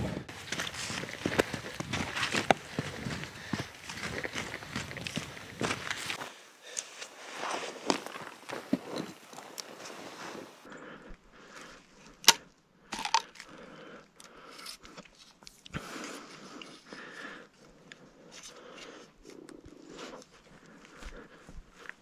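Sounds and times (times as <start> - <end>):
footsteps through grass and brush: 0.3 - 6.3.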